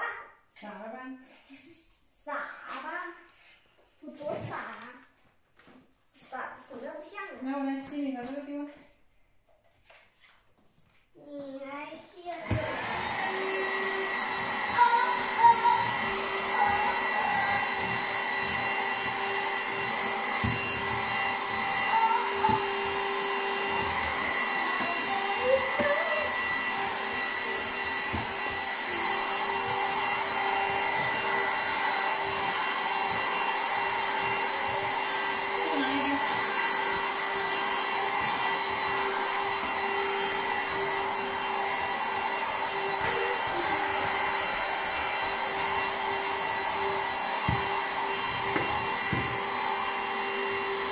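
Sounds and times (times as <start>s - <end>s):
handheld vacuum cleaner whining: 12.3s - 50.9s.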